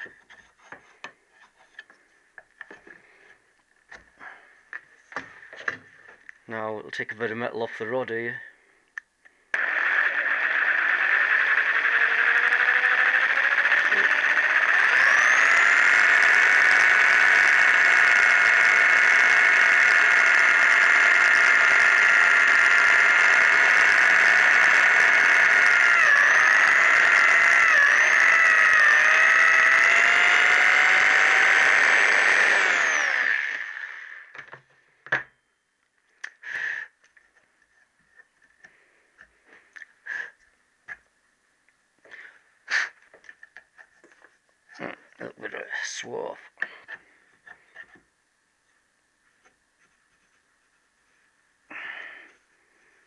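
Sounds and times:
electric drill whining: 0:09.5 - 0:35.3.

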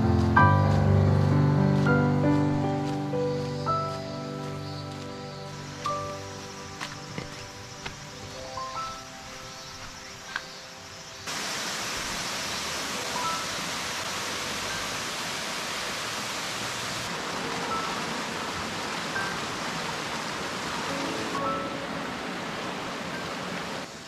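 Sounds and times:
stream rushing over rocks: 0:11.3 - 0:24.0.

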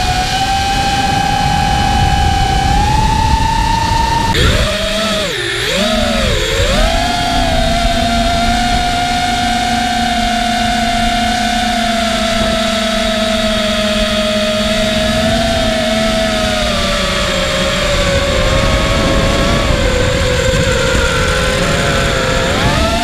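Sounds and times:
drone motors and propellers whining: 0:00.0 - 0:23.0
wind rush on microphone: 0:00.0 - 0:23.0.

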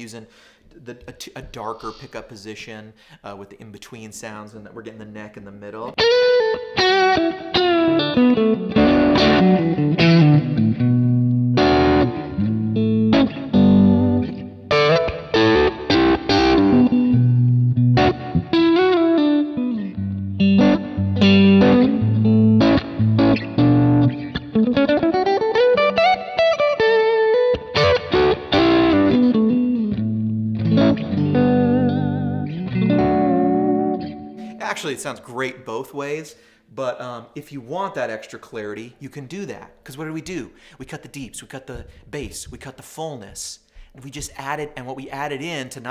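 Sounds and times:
overdriven electric guitar lead: 0:06.0 - 0:34.6.

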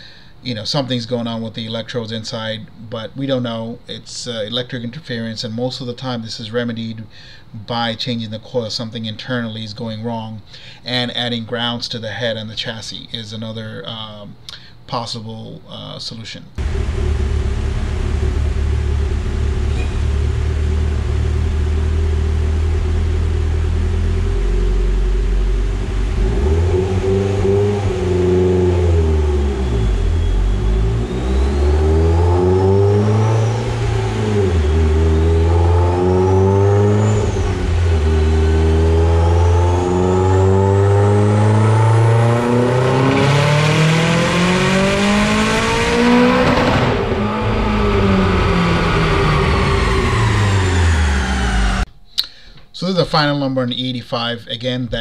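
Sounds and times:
car engine revving on dyno: 0:16.6 - 0:51.9
turbo whine: 0:16.6 - 0:51.9.

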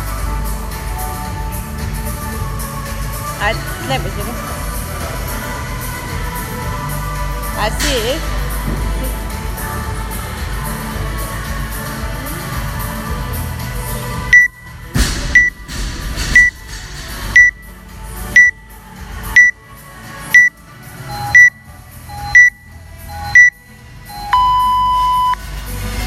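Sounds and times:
long low electronic beep: 0:14.3 - 0:14.6, 0:15.4 - 0:15.6, 0:16.4 - 0:16.6, 0:17.4 - 0:17.6, 0:18.4 - 0:18.6, 0:21.1 - 0:25.4
short high electronic beeps: 0:14.4 - 0:14.6, 0:17.4 - 0:17.6, 0:18.4 - 0:18.6, 0:21.1 - 0:25.4.

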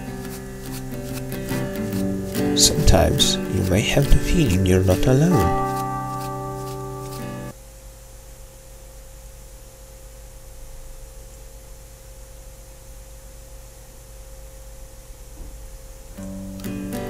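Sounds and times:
steady low hum: 0:00.0 - 0:17.0
held musical chord: 0:01.6 - 0:07.5.

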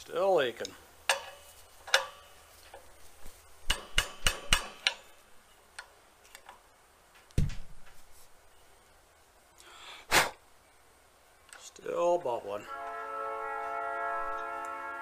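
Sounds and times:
heavy thump: 0:07.4 - 0:08.0.

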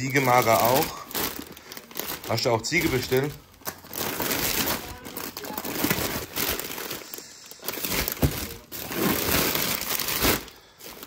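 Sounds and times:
plastic packaging crinkling: 0:00.0 - 0:11.0
dull knock of packs: 0:08.0 - 0:08.6.

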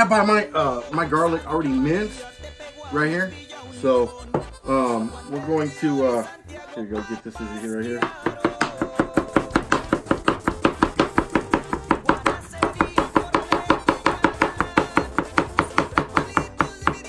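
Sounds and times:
knife chopping on plastic board: 0:08.0 - 0:17.0.

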